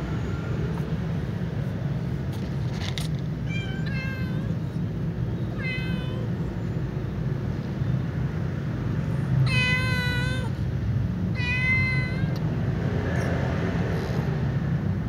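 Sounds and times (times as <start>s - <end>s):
cat meowing: 3.4s - 4.7s, 5.4s - 6.4s, 9.4s - 10.6s, 11.3s - 12.4s.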